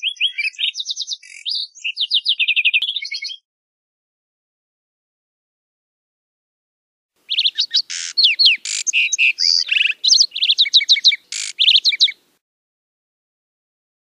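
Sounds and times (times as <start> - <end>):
sparrow singing: 0.0 - 3.5, 7.3 - 12.3.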